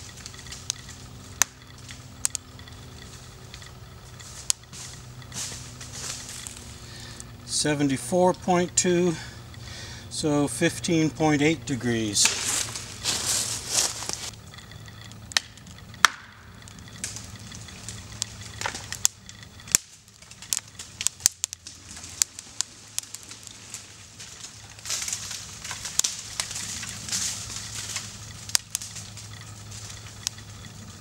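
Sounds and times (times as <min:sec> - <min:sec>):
tree hinge wood cracking: 0:00.0 - 0:10.0, 0:12.2 - 0:31.0.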